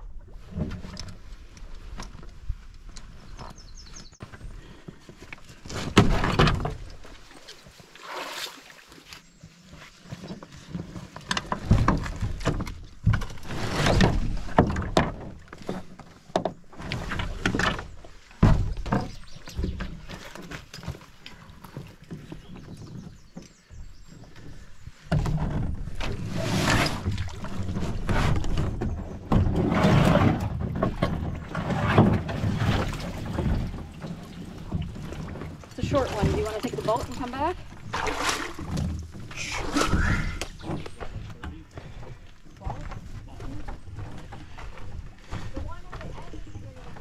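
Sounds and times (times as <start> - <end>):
hollow knocks against canoe hull: 11.2 - 23.2, 25.1 - 26.2.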